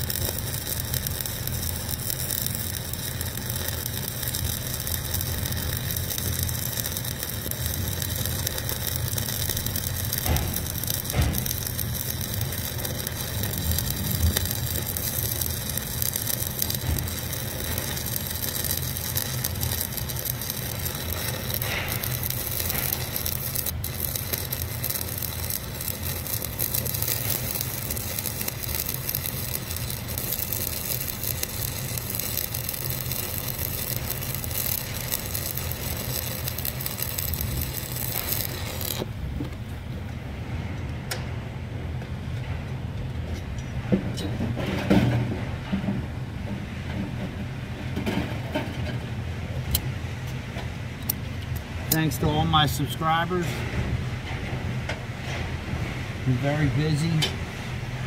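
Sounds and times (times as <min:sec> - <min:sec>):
welding arc crackling hiss: 0:00.0 - 0:39.4, 0:51.0 - 0:53.7, 0:56.2 - 0:58.0
steady low hum: 0:00.0 - 0:58.0.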